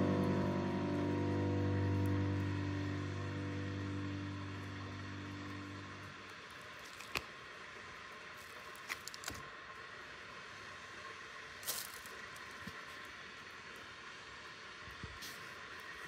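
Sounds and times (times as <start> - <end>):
faint hiss: 1.9 - 16.0
paper rustle: 8.4 - 9.4
foil tray crinkling: 8.5 - 9.4.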